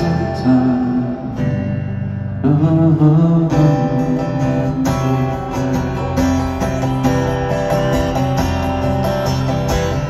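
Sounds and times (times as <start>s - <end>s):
strummed guitar: 0.0s - 10.0s
live band music: 4.1s - 10.0s.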